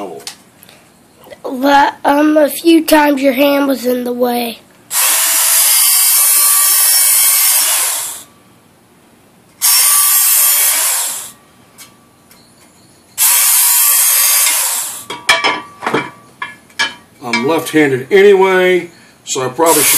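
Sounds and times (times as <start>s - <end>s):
belt sharpener grinding steel: 4.9s - 8.3s, 9.6s - 11.4s, 13.2s - 15.1s, 19.6s - 19.9s.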